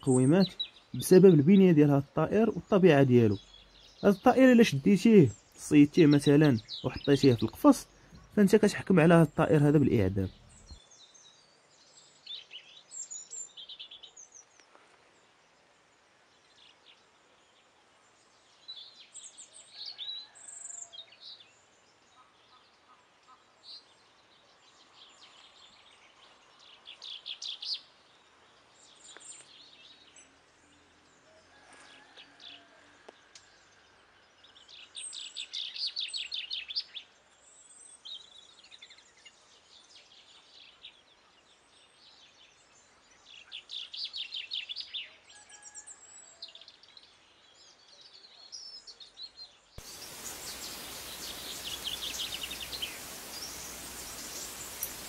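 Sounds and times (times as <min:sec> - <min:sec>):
robin singing: 0:00.0 - 0:11.4, 0:49.8 - 0:55.0.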